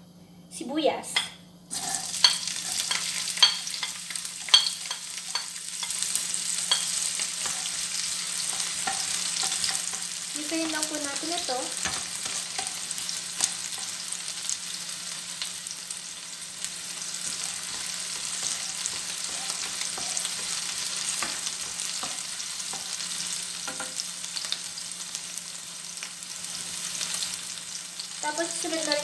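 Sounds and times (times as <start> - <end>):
spoon scraping a pan: 1.7 - 14.6, 16.9 - 24.0
onions sizzling in oil: 1.7 - 29.0.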